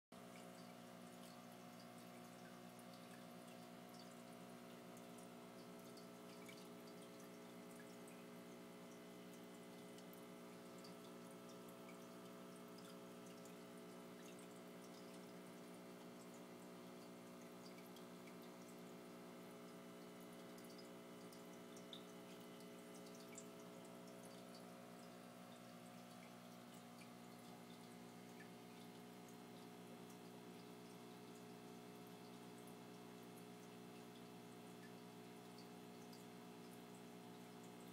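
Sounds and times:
aquarium low hum: 0.2s - 37.9s
water drips and ticks: 0.2s - 37.9s.

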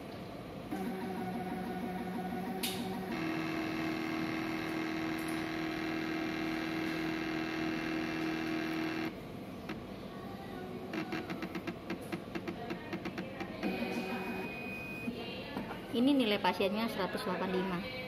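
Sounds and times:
motor whine: 0.7s - 9.2s.

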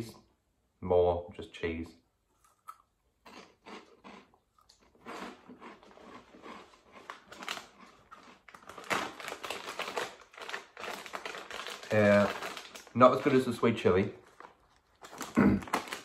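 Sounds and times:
crunching and chewing snack: 2.4s - 13.4s, 14.2s - 16.0s
crisp packet rustling: 5.6s - 16.0s.

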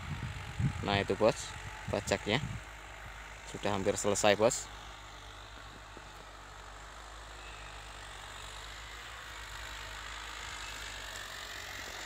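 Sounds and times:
distant tractor engine running: 0.0s - 12.0s.

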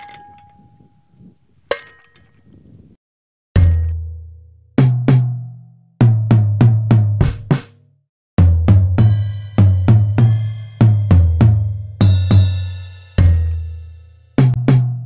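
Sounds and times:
drum beat: 6.0s - 7.8s, 8.4s - 15.0s
tom drum hits: 6.9s - 7.7s.

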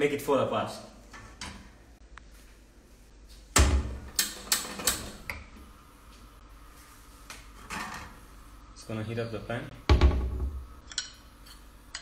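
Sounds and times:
pan thump: 9.9s - 10.6s.

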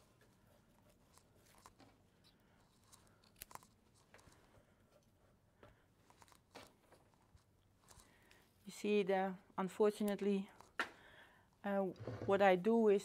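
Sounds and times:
flower stems crunching and snapping: 2.7s - 4.4s.

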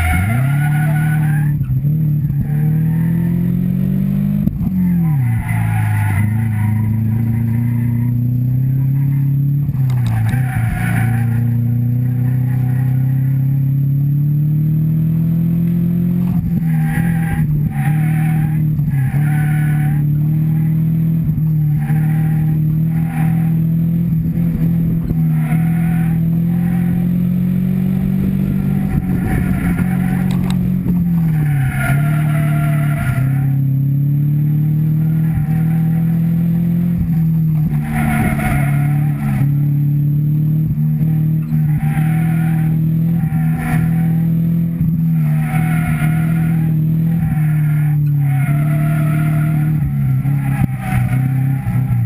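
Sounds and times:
car engine revving: 0.0s - 52.0s.

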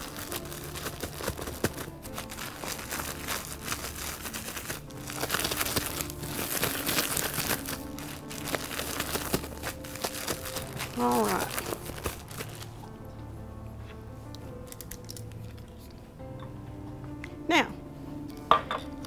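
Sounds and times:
plastic bag crinkling: 0.0s - 12.8s, 14.7s - 15.3s
background music: 0.0s - 19.0s.

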